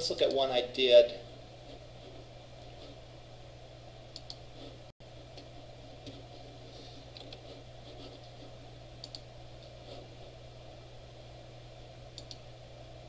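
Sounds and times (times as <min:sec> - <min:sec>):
low room hum: 0:00.0 - 0:13.0
computer mouse clicks: 0:04.1 - 0:04.4, 0:09.0 - 0:09.8, 0:12.2 - 0:12.4
fainter ticks: 0:12.2 - 0:12.4.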